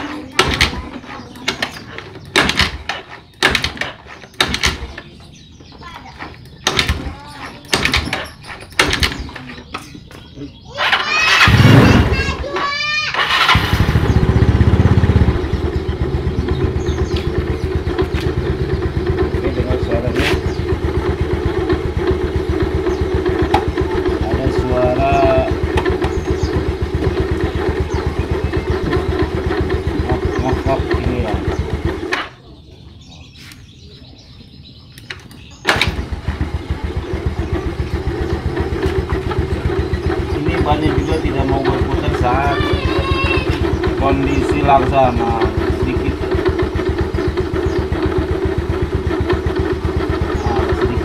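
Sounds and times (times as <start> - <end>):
scooter engine idling: 0.0 - 51.0
engine restarting burst: 10.8 - 12.4, 13.1 - 32.4, 35.6 - 51.0
rough rubbing noise from transmission: 16.6 - 32.4.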